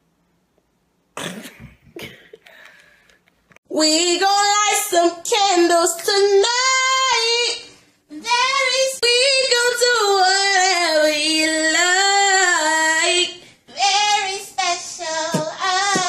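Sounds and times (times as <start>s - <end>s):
girl singing unaccompanied: 3.7s - 16.0s.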